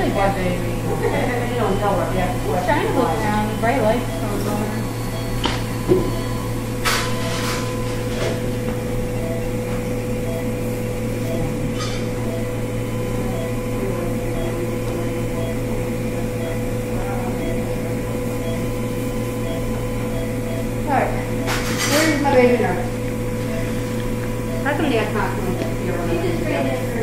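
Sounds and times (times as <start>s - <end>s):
faint pulsing tone: 0.0s - 21.6s
equipment hum: 0.0s - 27.0s.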